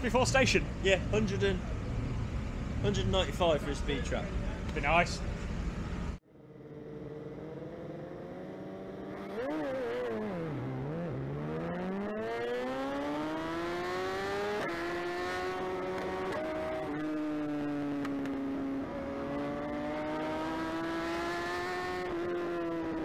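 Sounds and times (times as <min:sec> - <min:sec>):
motorcycle engine revving: 0:06.2 - 0:23.0.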